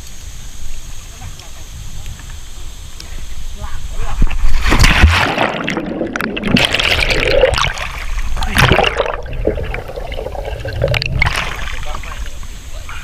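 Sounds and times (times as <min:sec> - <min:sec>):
river water splashing: 0:04.4 - 0:12.6.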